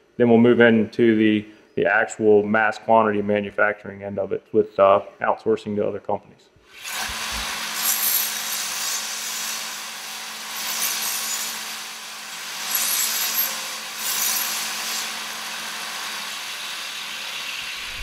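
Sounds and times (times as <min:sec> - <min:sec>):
belt sander motor hum: 0:06.8 - 0:08.5
metal rod grinding hiss: 0:06.9 - 0:18.0.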